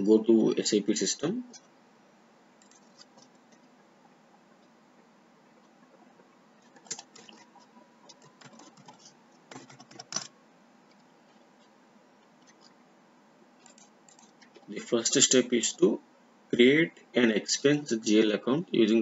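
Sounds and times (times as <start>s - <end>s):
low steady hiss: 0.0s - 19.0s
computer keyboard and mouse clicking: 2.6s - 3.7s, 6.6s - 10.3s, 13.6s - 14.7s.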